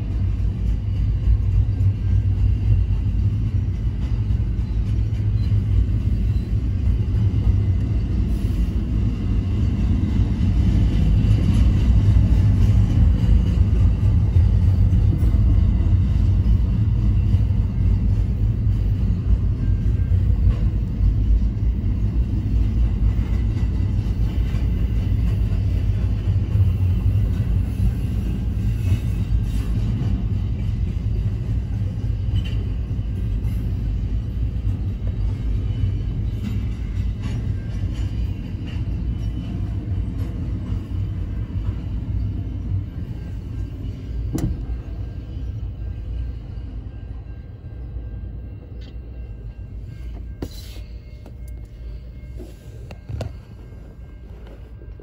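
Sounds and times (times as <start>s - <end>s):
freight train rumbling past: 0.0s - 55.0s.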